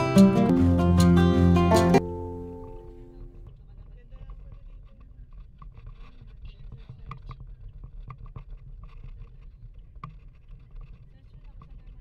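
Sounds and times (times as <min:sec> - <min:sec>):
road and engine rumble: 0:00.0 - 0:07.4.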